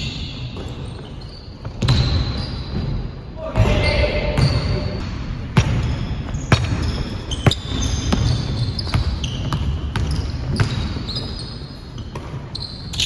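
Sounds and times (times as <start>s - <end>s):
sneakers squeaking: 0.0s - 13.0s
basketball bouncing on wood floor: 1.6s - 3.0s, 3.6s - 11.0s.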